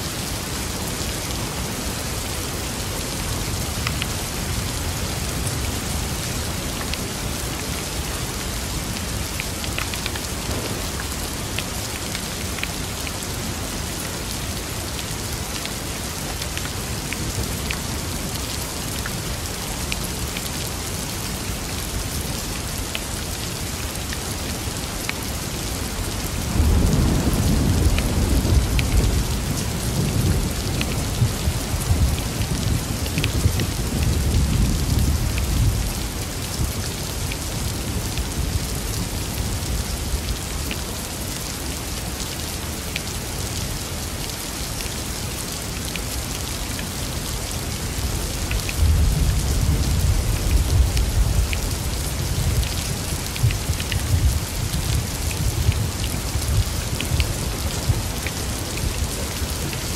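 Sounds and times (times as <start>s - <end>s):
steady rain: 0.0s - 59.9s
rain drops ticking: 0.1s - 59.9s
thunder rumble: 10.4s - 11.6s.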